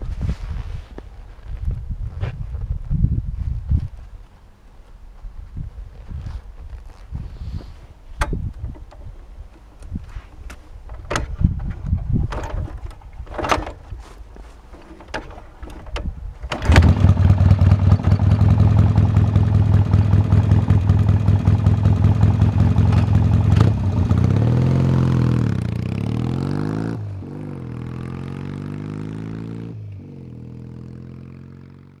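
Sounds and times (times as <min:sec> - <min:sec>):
motorcycle engine starting and revving: 0:08.2 - 0:32.0.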